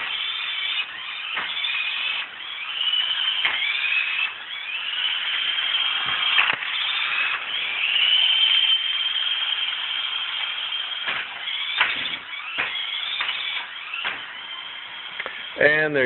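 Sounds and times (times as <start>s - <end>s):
toy car motor whining: 0.0s - 16.0s
toy car knocking into furniture: 3.3s - 4.3s, 11.0s - 14.5s.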